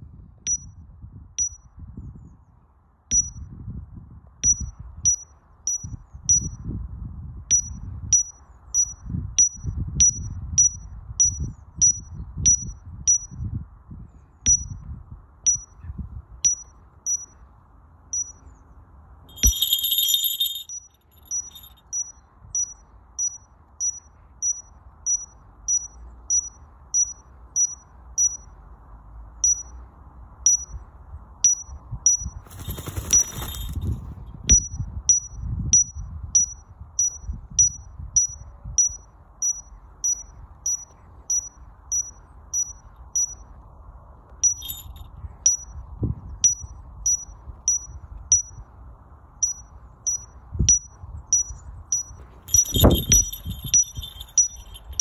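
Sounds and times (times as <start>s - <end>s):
falconry bell jingling: 19.3s - 21.8s, 32.4s - 34.0s, 44.4s - 45.1s, 52.0s - 55.0s
wind on microphone: 31.8s - 38.7s, 50.6s - 55.0s.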